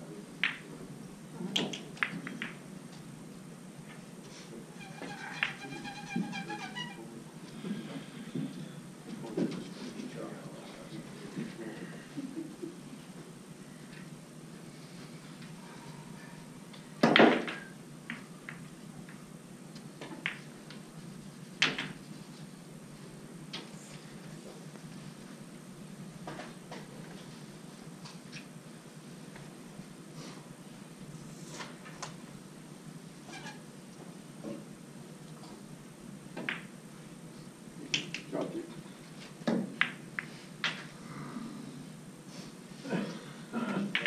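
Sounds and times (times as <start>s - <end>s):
pool balls clacking: 0.4s - 0.8s, 1.5s - 2.6s, 4.9s - 6.8s, 17.0s - 19.2s.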